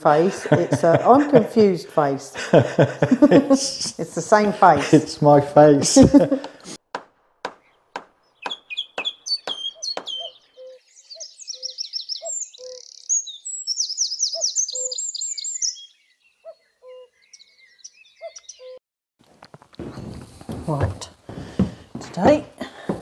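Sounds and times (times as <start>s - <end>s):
sharp knocks: 6.4s - 10.3s
small birds chirping and trilling: 7.6s - 18.8s.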